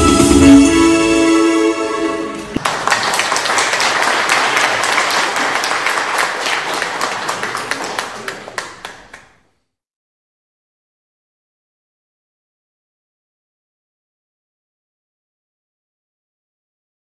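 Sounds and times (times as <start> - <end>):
dance music: 0.0 - 2.6
audience applauding: 2.3 - 9.5.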